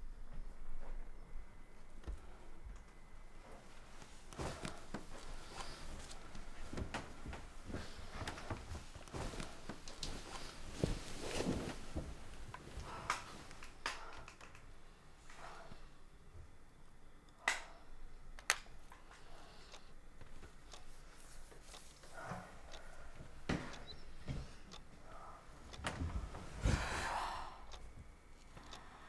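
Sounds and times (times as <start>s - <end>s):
clothing and bedding rustling: 1.8s - 14.2s, 19.2s - 27.2s.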